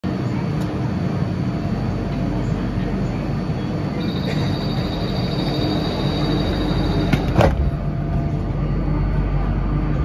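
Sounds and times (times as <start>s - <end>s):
train rumble with motor whine: 0.0s - 10.0s.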